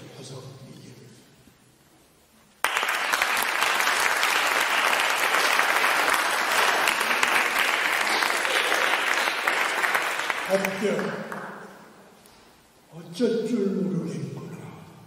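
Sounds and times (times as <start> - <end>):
audience applauding: 2.6 - 11.7.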